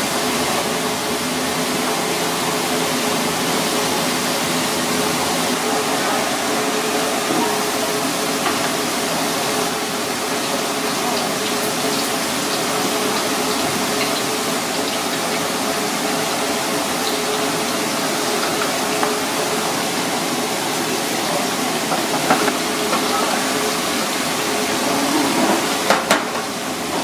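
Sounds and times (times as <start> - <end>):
fish sizzling in hot oil: 7.9 - 24.8.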